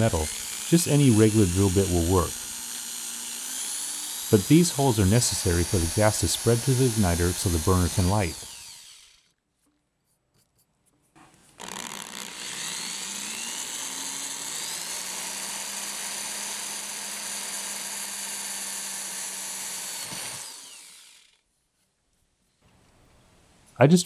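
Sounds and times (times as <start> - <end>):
electric drill boring metal: 0.0 - 9.4, 11.6 - 21.4.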